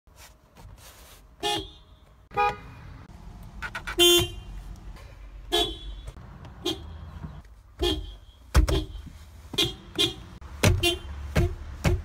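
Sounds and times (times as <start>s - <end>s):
car horn honks: 1.4s - 3.0s, 3.6s - 4.6s, 5.5s - 11.6s.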